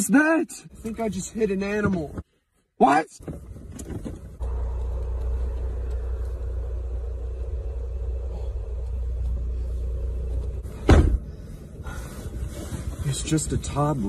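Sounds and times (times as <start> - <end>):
car engine idling: 4.2 - 12.4.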